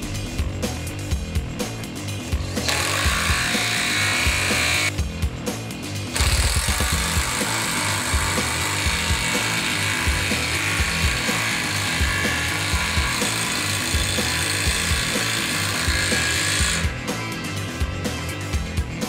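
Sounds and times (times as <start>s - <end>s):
background music with beat: 0.0s - 19.0s
impact wrench hammering: 2.5s - 4.9s, 6.2s - 17.0s.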